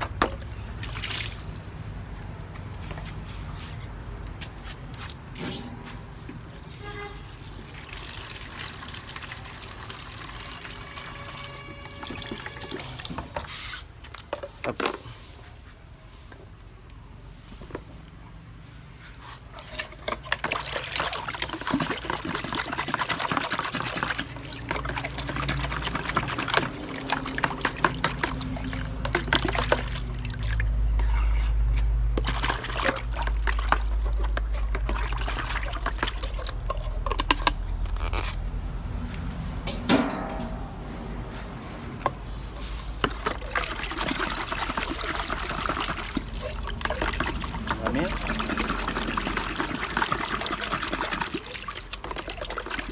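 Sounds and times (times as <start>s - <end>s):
water running and splashing: 20.1s - 30.8s, 32.1s - 37.0s, 43.0s - 52.9s.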